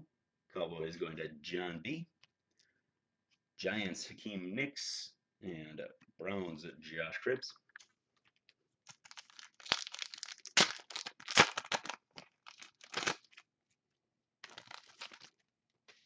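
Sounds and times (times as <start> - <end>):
foil wrapper tearing and crinkling: 8.9 - 13.4, 14.4 - 15.4.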